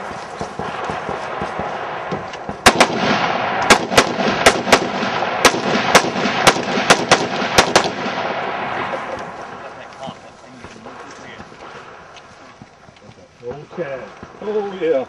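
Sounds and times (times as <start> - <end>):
rifle shots: 0.0 - 10.0.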